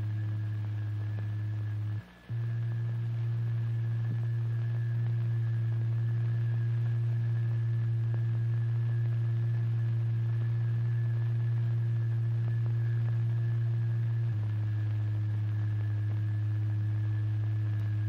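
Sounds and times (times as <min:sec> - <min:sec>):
low electronic sine tone: 0:00.0 - 0:18.0.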